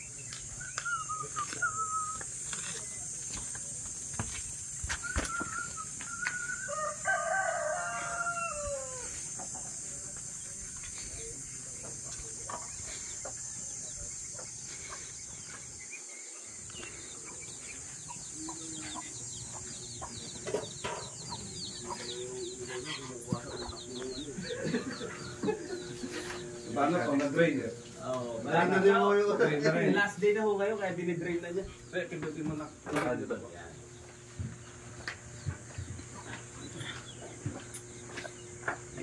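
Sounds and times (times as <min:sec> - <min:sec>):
rooster crowing: 0:06.2 - 0:09.6.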